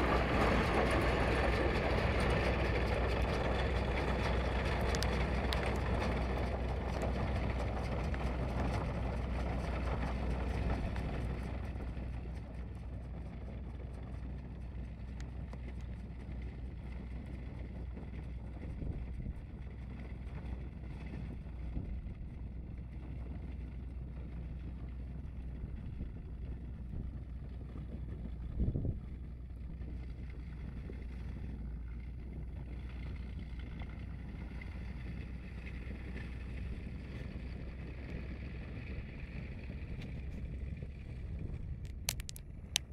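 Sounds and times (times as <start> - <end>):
tractor engine running: 0.0 - 42.9
wind on microphone: 27.8 - 29.2.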